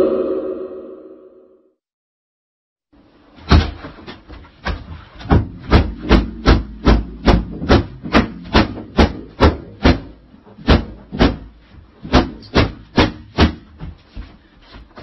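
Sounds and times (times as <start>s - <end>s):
object being beaten: 5.3s - 11.4s.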